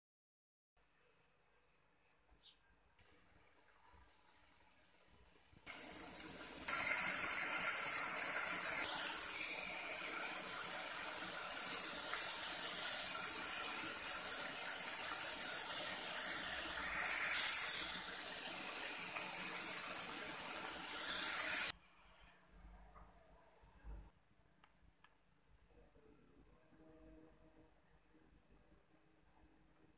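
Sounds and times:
vegetables sizzling in hot oil: 4.2s - 21.8s.

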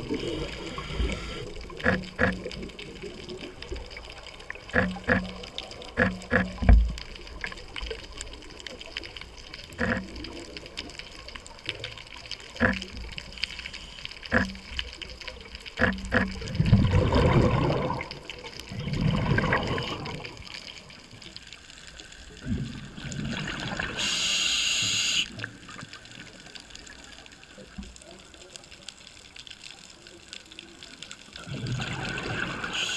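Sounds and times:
exhaled bubbles rumbling underwater: 0.0s - 24.1s, 30.8s - 32.9s
regulator inhalation hiss: 0.1s - 1.6s, 24.0s - 25.3s
sharp clicks: 1.8s - 2.7s, 4.7s - 6.9s, 15.8s - 16.4s.

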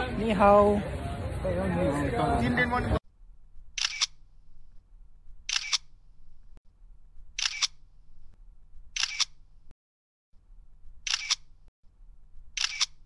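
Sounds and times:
camera shutter clicks: 3.8s - 4.2s, 5.5s - 5.9s, 7.4s - 7.8s, 9.0s - 9.4s, 11.0s - 11.5s, 12.6s - 13.0s.

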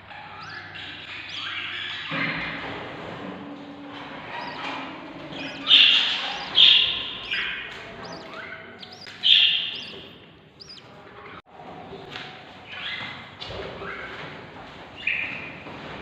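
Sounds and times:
budgie chicks cheeping: 0.1s - 2.2s, 3.9s - 11.4s
faint squeaky peeps: 4.2s - 11.4s.

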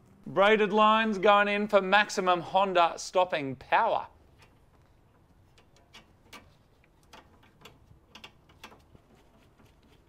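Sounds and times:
light clicks and taps: 4.3s - 10.0s.

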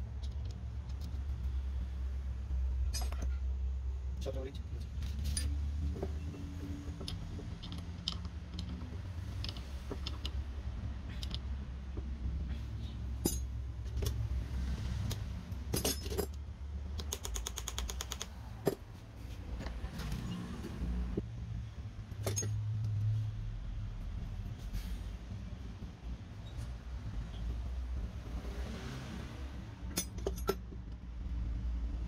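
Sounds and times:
metal tools clinking: 5.1s - 5.6s, 13.2s - 14.2s, 15.7s - 16.4s, 22.2s - 22.6s, 29.9s - 30.7s.

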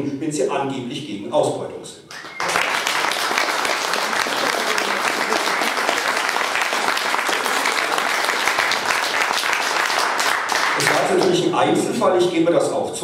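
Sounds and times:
audience applauding: 2.1s - 11.4s.

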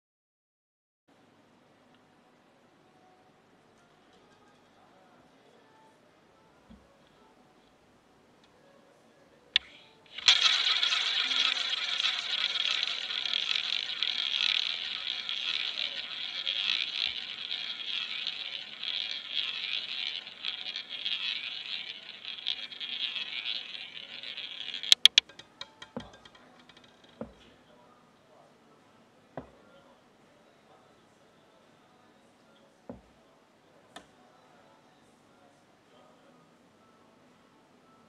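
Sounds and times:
roulette ball rolling: 9.6s - 27.5s, 29.4s - 29.6s, 32.9s - 33.1s
roulette ball clattering into pocket: 10.2s - 27.4s.

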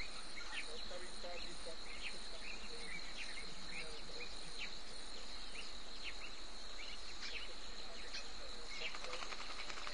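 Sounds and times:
high insect drone: 0.0s - 9.9s
short insect chirps: 0.0s - 9.9s.

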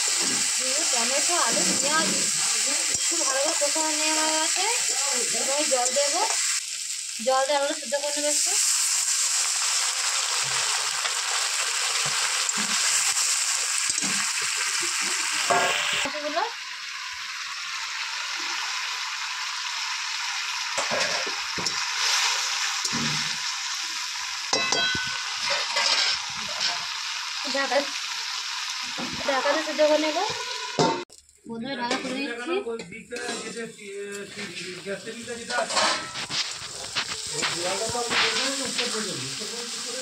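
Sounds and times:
water sizzling in hot pan: 0.0s - 40.0s
metal spatula scraping pan: 0.1s - 6.4s, 20.8s - 23.3s, 24.6s - 26.9s, 35.5s - 39.0s.

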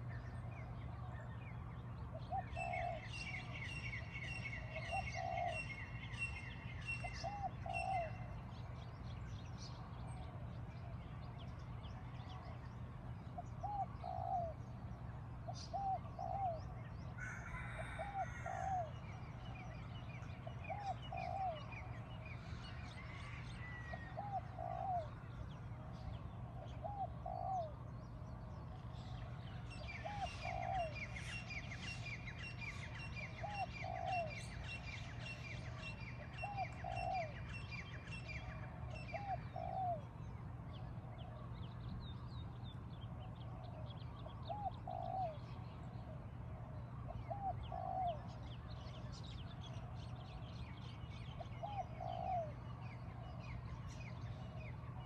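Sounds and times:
dove cooing: 2.2s - 3.6s, 4.6s - 5.7s, 7.0s - 8.3s, 13.6s - 14.6s, 15.5s - 18.9s, 20.5s - 21.8s, 23.0s - 25.2s, 26.5s - 27.8s, 29.8s - 34.8s, 35.7s - 37.5s, 38.3s - 40.1s, 43.6s - 48.4s, 51.4s - 52.6s.

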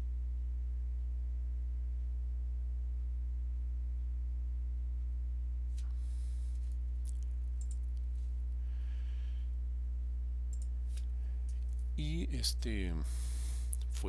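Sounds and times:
low electrical hum: 0.0s - 14.0s
faint clicks: 5.8s - 8.1s, 10.5s - 11.9s.

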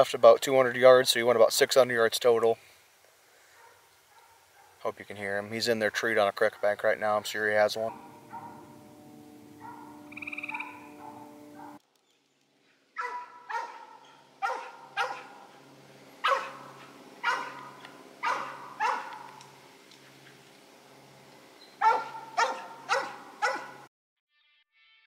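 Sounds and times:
dog barking: 3.5s - 4.8s, 7.9s - 8.7s, 9.6s - 11.8s, 13.0s - 15.5s, 16.2s - 19.4s, 21.8s - 23.9s
steady mix of tones: 7.3s - 11.8s, 13.8s - 23.8s.

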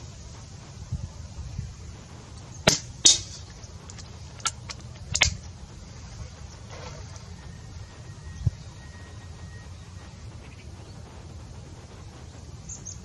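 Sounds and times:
air rifle shot crack: 2.6s - 3.5s
pellet hitting target: 2.6s - 5.4s.

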